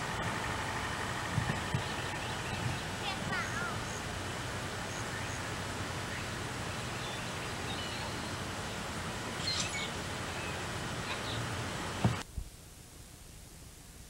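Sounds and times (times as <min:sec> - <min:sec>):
low hum: 0:00.0 - 0:14.0
faint bird chirps: 0:04.9 - 0:08.8, 0:09.4 - 0:11.5.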